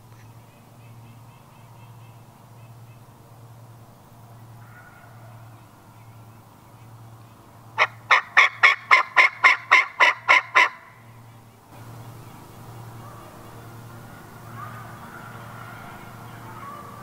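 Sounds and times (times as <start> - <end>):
wild turkey yelping: 7.8 - 11.1, 12.1 - 17.0.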